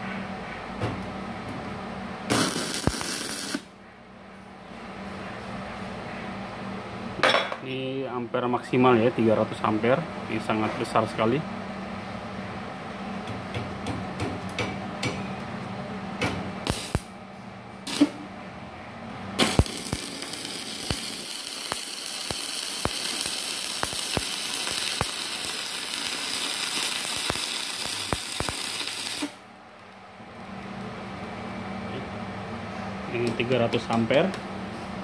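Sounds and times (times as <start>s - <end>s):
welding arc hissing and crackling: 2.3s - 3.7s, 16.6s - 17.1s, 17.9s - 18.2s, 19.4s - 29.4s.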